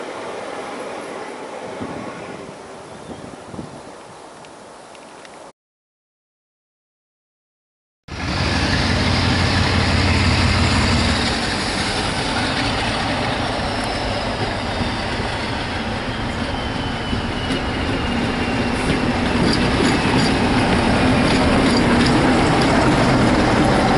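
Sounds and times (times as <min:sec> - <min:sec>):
diesel locomotive passing: 0:00.0 - 0:03.0, 0:08.1 - 0:23.9
wheels clicking on rails: 0:11.8 - 0:23.9.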